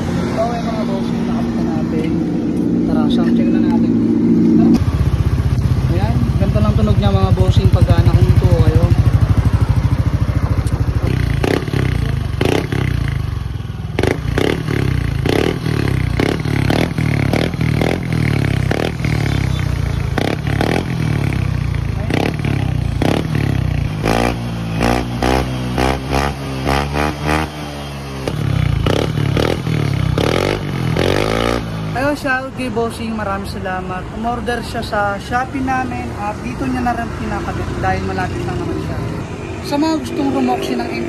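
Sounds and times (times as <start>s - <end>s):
scooter engine revving: 0.0s - 32.6s.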